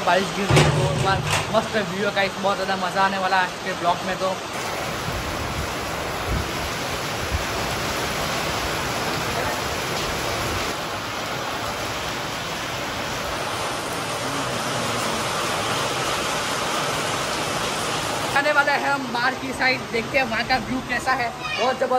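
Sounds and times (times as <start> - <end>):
rain splashing on stone paving: 0.0 - 21.9.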